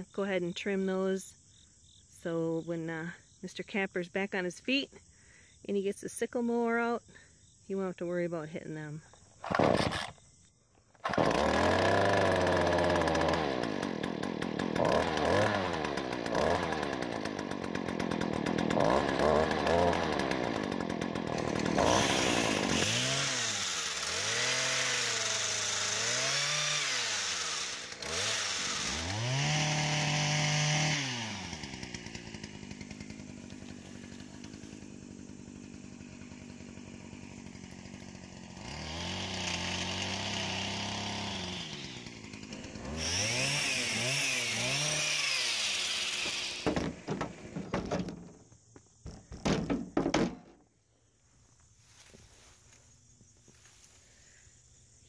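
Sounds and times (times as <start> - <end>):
pole saw engine revving: 9.4 - 10.2, 11.0 - 48.3
sharp knocks: 46.6 - 48.4, 49.0 - 50.6.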